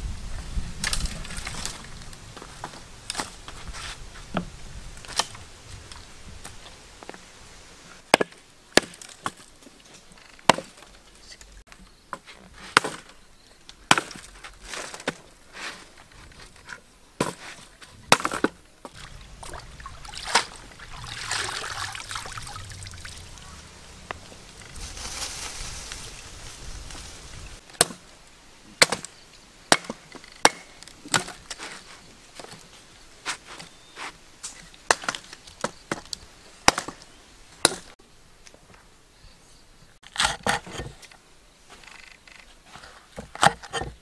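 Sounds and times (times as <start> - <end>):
hissing rustling noise: 0.0 - 8.1, 18.9 - 28.6
firewood chopping strikes: 8.1 - 9.4, 10.4 - 10.8, 12.7 - 13.1, 13.9 - 14.3, 18.1 - 19.5, 27.7 - 28.1, 28.8 - 29.1, 29.7 - 31.4, 34.9 - 37.0, 37.6 - 38.0.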